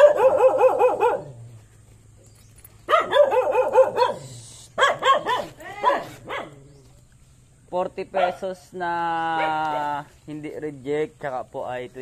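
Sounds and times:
dogs barking: 0:00.0 - 0:01.5, 0:02.8 - 0:06.7, 0:08.1 - 0:08.6, 0:09.3 - 0:10.0.

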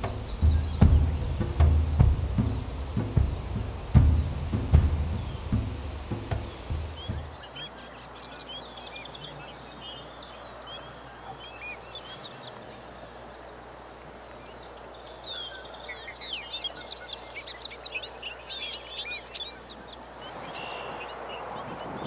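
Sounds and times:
small birds chirping: 0:00.0 - 0:22.0
sparrow buzzy trill: 0:06.7 - 0:22.0.

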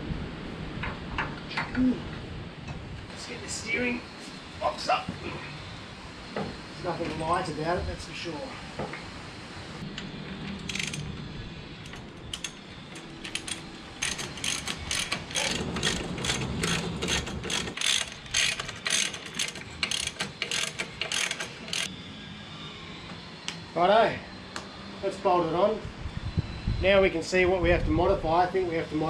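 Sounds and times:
socket ratchet clicking: 0:10.6 - 0:11.1, 0:11.8 - 0:21.9.

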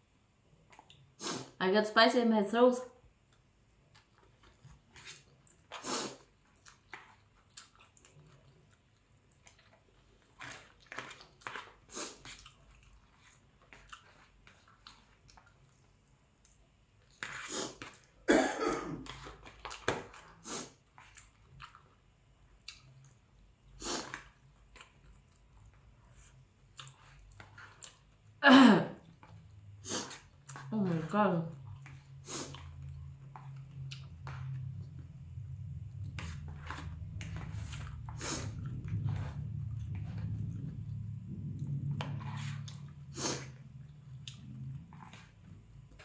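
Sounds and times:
person chewing noodles: 0:00.6 - 0:01.5, 0:03.3 - 0:18.3, 0:19.0 - 0:28.4, 0:29.0 - 0:46.0.

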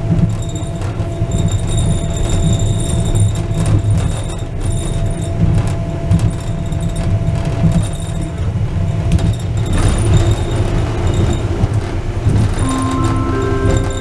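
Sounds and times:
suspended railway car rumbling: 0:00.0 - 0:14.0.

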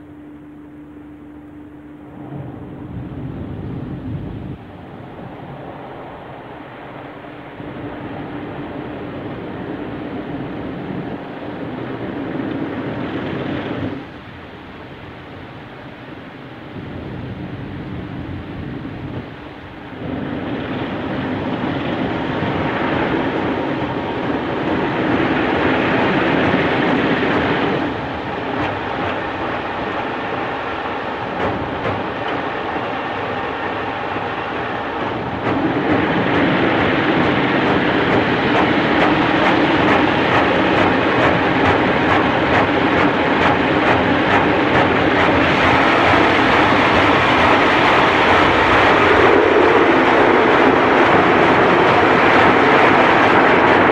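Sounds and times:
water spraying: 0:20.8 - 0:53.9
car wash brushes slapping car: 0:23.1 - 0:53.9.

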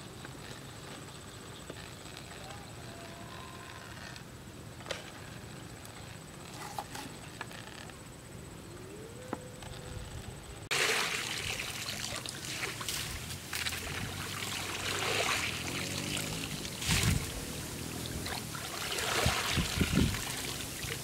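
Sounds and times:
bamboo basket swishing through water: 0:10.7 - 0:21.0
water running through basket weave: 0:10.7 - 0:21.0.

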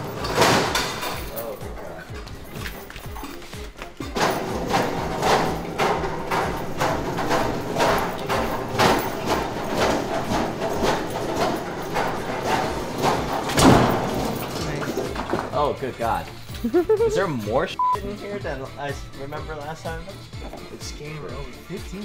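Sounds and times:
footsteps on concrete: 0:02.1 - 0:04.2.

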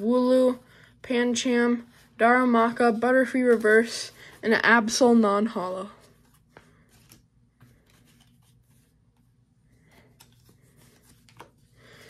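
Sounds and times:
trading cards rustling: 0:02.6 - 0:12.0.

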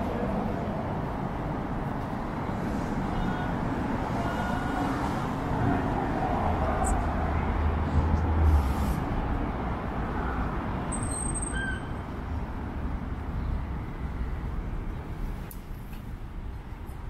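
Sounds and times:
passing traffic rumble: 0:00.0 - 0:17.0
brief high squeak: 0:10.9 - 0:12.0.

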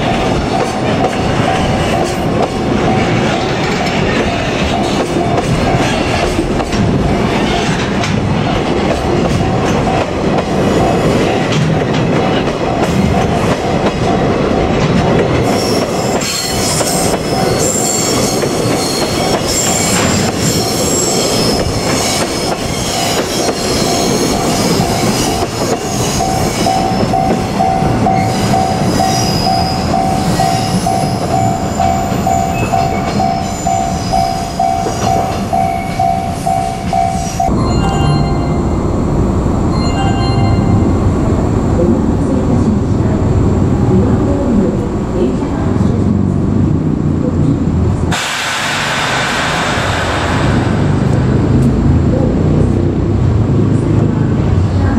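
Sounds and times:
train wheels squealing: 0:15.4 - 0:38.3
level-crossing warning bell: 0:16.0 - 0:41.8.

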